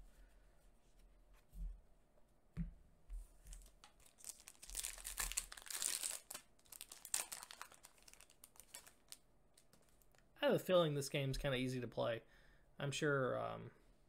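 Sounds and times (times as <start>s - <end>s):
foil wrapper crinkling and tearing: 3.5s - 10.2s.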